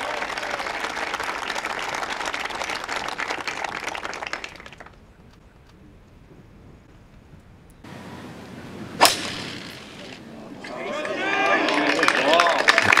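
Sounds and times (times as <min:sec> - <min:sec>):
crowd applause: 0:00.0 - 0:05.0, 0:10.6 - 0:13.0.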